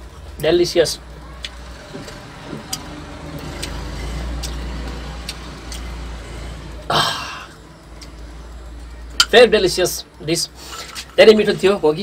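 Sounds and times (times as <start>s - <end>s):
man chewing: 1.4s - 8.3s.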